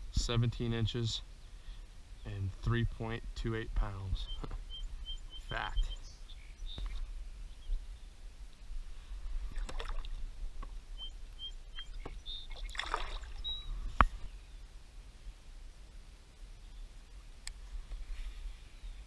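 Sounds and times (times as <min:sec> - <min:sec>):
water splashing and sloshing: 0:09.4 - 0:10.8, 0:11.8 - 0:13.7.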